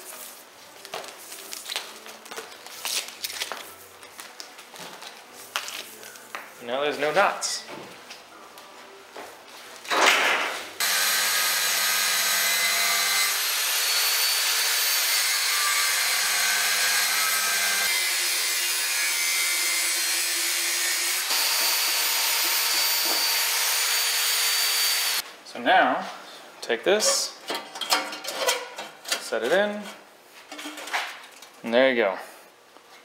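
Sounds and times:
angle grinder cutting steel: 10.8s - 25.2s.

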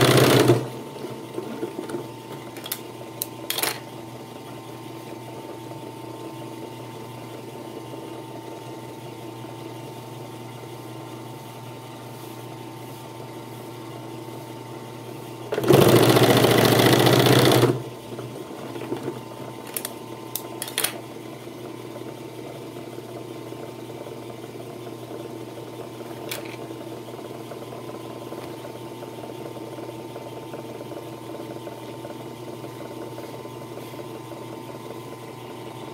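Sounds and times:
sewing machine stitching: 0.0s - 0.8s, 15.5s - 17.8s
sewing machine motor humming: 0.0s - 3.6s, 15.5s - 18.6s.

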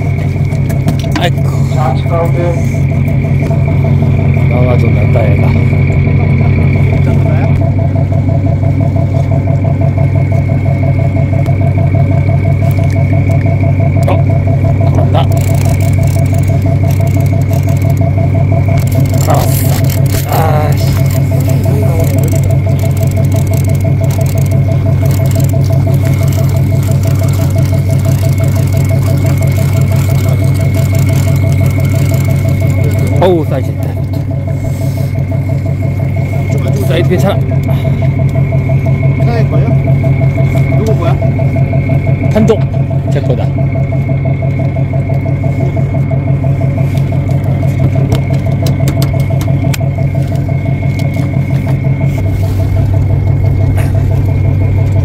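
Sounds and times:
boat engine hum: 0.0s - 55.0s
fishing reel rattling: 15.1s - 33.6s
sharp clicks: 15.2s - 33.0s, 48.1s - 51.7s.

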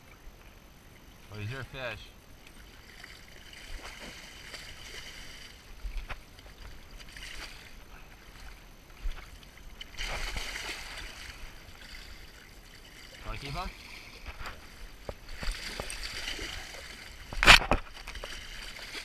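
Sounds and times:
fish splashing in water: 2.5s - 5.7s, 9.7s - 19.0s.

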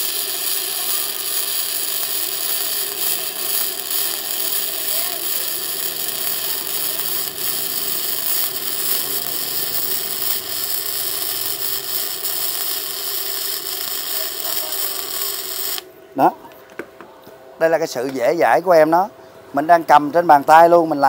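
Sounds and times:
welding arc crackling: 0.0s - 15.9s.

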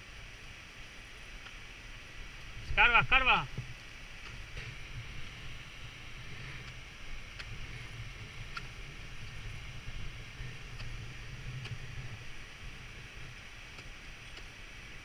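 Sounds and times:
wind buffeting microphone: 3.5s - 15.0s
faint sharp ticks: 6.6s - 7.7s, 8.5s - 9.5s, 10.4s - 12.1s, 13.7s - 14.6s.

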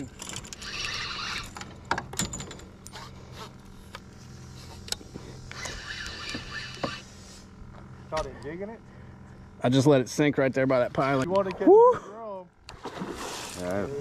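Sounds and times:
rasping reel buzz: 0.0s - 1.9s, 2.7s - 7.9s
steady low hum: 0.0s - 14.0s.

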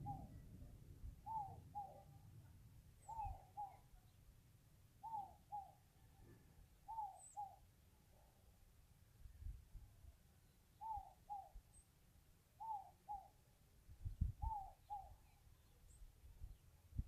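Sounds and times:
faint high chirps: 0.0s - 4.2s.

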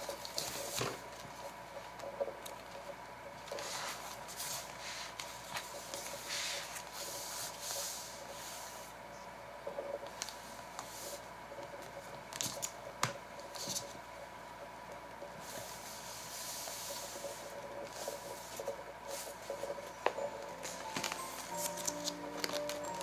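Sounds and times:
faint steady hum: 0.0s - 23.0s
paper pages rustling: 16.9s - 23.0s.

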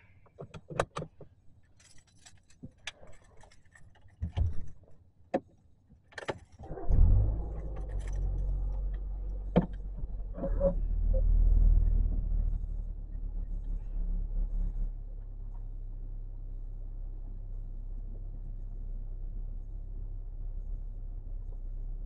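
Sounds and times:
car engine starting and idling: 6.6s - 22.0s.

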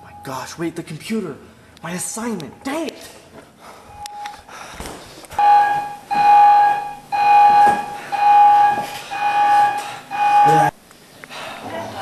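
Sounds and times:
electronic alarm beeping: 3.9s - 4.4s, 5.4s - 10.8s.

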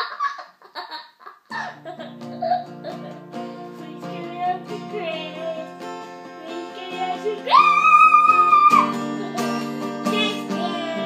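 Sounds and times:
guitar chords strummed: 1.5s - 7.6s, 8.4s - 11.0s
person singing quietly: 10.0s - 11.0s.

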